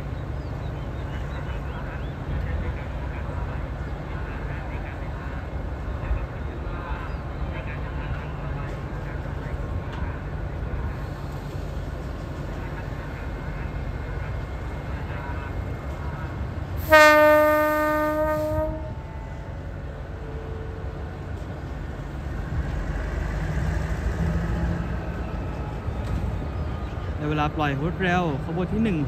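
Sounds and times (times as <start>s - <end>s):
locomotive horn: 16.8s - 19.4s.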